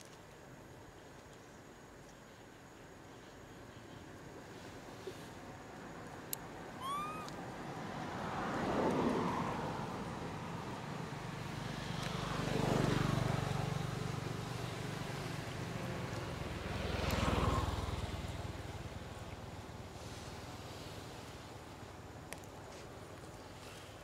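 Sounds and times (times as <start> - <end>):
vehicles passing by: 5.4 - 24.0
low engine hum: 6.6 - 22.3.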